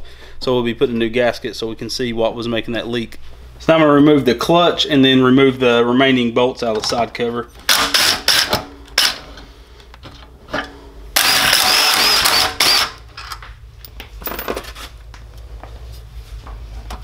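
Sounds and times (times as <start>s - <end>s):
impact driver hammering: 7.7s - 9.2s, 11.2s - 13.0s.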